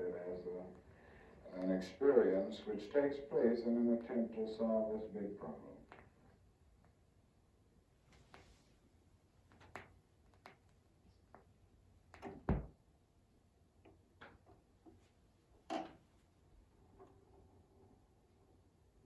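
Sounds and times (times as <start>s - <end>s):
deep thump: 12.4s - 12.8s.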